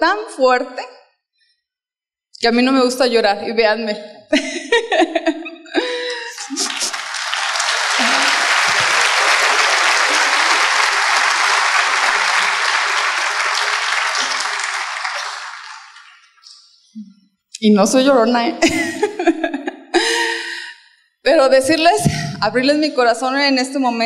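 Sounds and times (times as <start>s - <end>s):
audience applauding: 6.0s - 16.6s.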